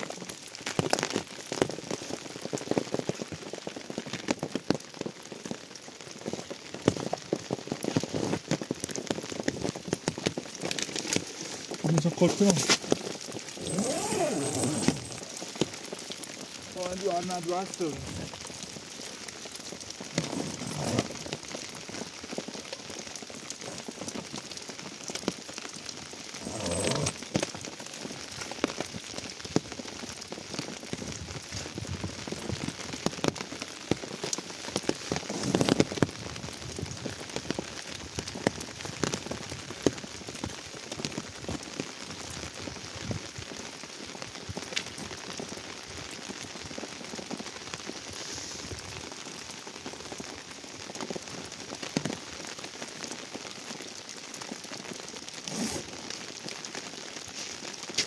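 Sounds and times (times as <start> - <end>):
rain pattering on tent canvas: 0.0 - 58.0
loud rustles: 12.2 - 15.8, 20.0 - 21.4.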